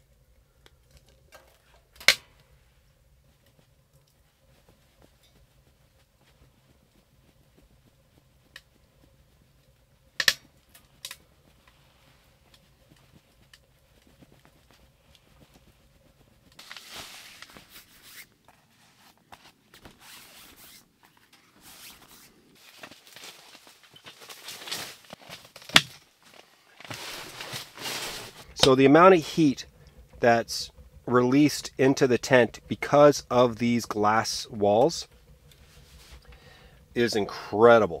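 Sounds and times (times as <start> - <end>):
fabric rustling and shuffling: 2.6 - 30.4.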